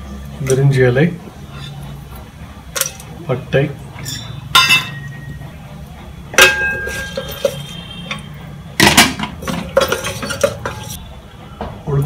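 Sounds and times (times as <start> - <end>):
spatula scraping metal pot: 1.4 - 2.0, 6.4 - 8.4, 9.2 - 11.0
wooden spatula knocking metal pot: 6.4 - 11.0.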